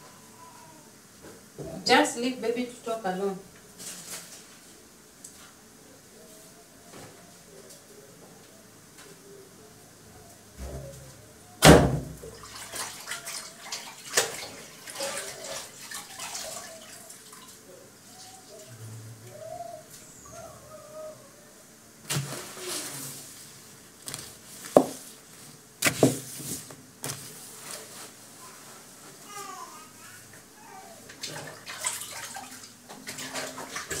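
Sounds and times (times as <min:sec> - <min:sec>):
water splashing: 0:12.3 - 0:17.6, 0:31.2 - 0:34.0.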